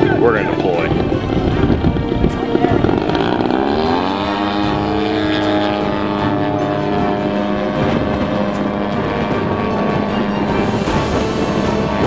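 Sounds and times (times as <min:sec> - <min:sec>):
model airplane motor buzzing: 0:00.0 - 0:12.0.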